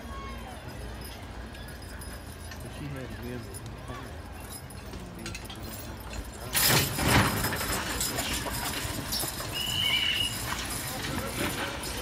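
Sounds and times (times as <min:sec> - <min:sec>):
high whistle-like tone: 0:09.5 - 0:10.4.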